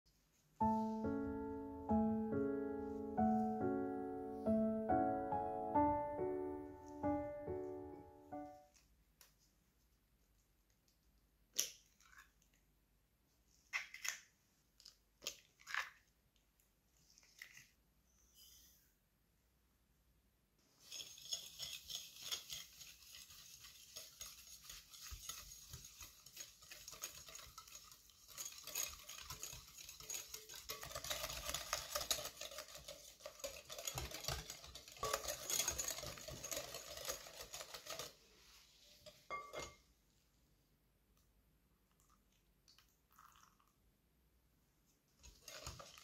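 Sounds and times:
whisk beating in glass bowl: 0:20.8 - 0:39.7, 0:45.2 - 0:46.0.

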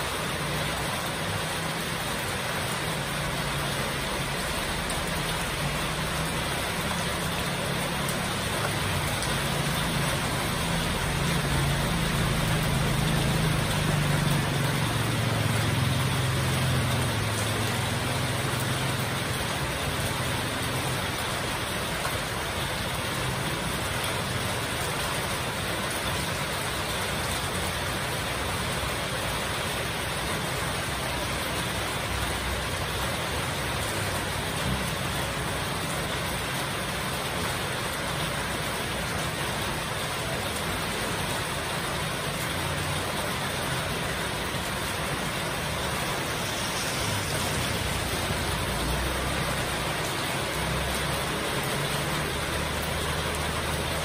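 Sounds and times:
heavy rain pouring: 0:00.0 - 0:54.0
vehicle engine passing: 0:42.4 - 0:54.0.

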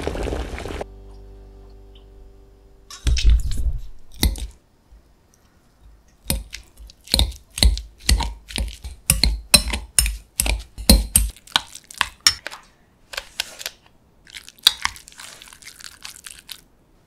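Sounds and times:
masher squishing eggs in glass bowl: 0:06.2 - 0:16.6.

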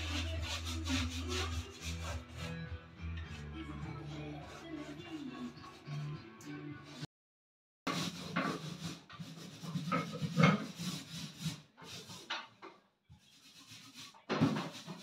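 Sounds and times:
hand tool rubbing on wall: 0:00.0 - 0:02.7, 0:03.3 - 0:06.1, 0:07.9 - 0:12.4, 0:13.2 - 0:15.0.

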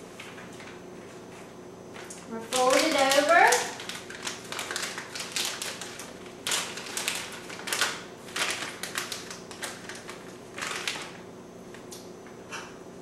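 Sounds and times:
plastic bag crinkling: 0:02.0 - 0:11.9.

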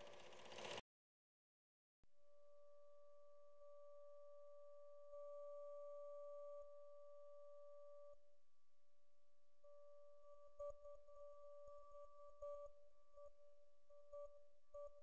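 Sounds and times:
high electronic sine tone: 0:09.7 - 0:15.0
lower steady electronic tones: 0:09.7 - 0:15.0.

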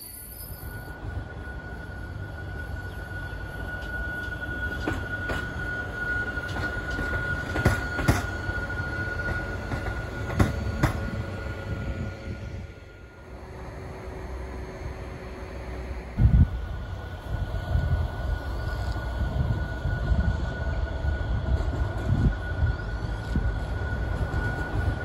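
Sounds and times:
locomotive wheels squealing: 0:00.0 - 0:12.1
wheels clacking on rail joints: 0:03.8 - 0:11.2.

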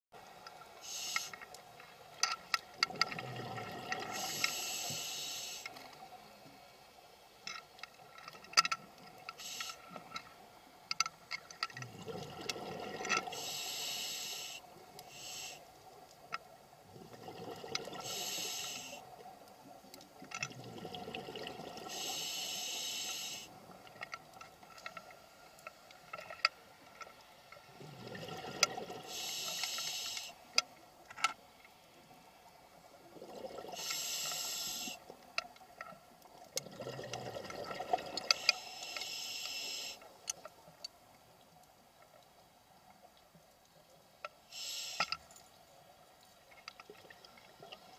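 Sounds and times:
diver breathing through regulator: 0:00.8 - 0:01.5, 0:04.0 - 0:05.8, 0:13.2 - 0:15.7, 0:17.9 - 0:19.0, 0:21.8 - 0:23.5, 0:29.0 - 0:30.4, 0:33.6 - 0:35.0, 0:38.2 - 0:40.0, 0:44.5 - 0:45.2.

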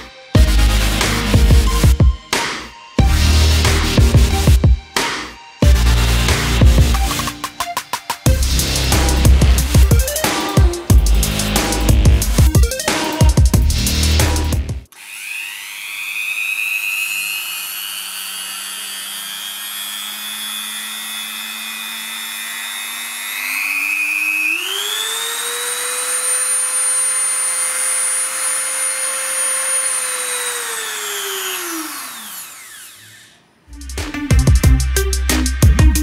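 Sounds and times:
rotary tool motor whine: 0:08.3 - 0:33.7.

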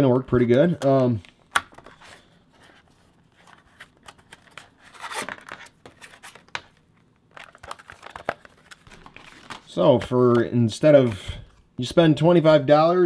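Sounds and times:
plastic packaging crinkling: 0:03.4 - 0:10.1.

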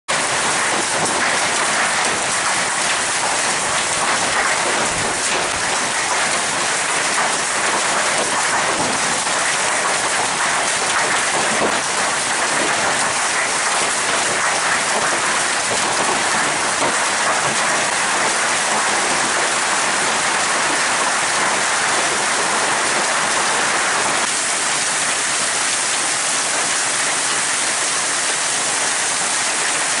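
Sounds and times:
hailstones pelting down: 0:00.1 - 0:30.0.

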